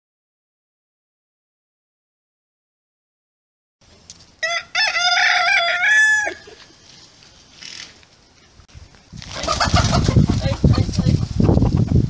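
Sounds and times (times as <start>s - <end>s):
rooster crowing: 4.4s - 6.6s
chickens flapping wings: 9.0s - 12.0s.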